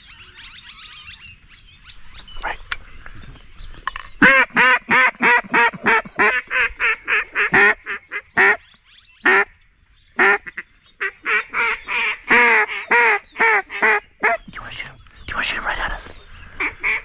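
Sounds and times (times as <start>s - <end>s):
duck call quacks: 4.2s - 8.6s, 10.2s - 14.4s.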